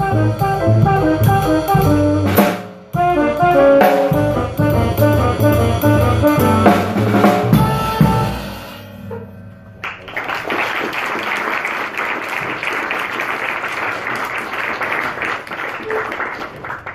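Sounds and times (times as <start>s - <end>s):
jazz combo playing: 0.0s - 10.0s, 13.2s - 16.9s
audience applause: 9.8s - 16.9s.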